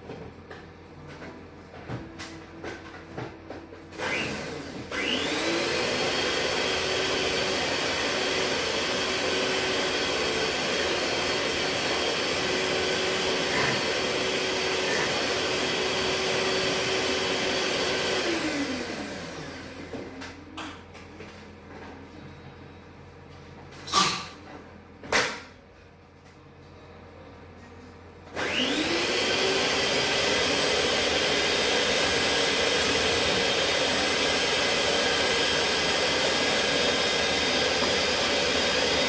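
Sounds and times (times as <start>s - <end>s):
electric mixer motor whining: 3.9s - 20.2s, 28.3s - 39.0s.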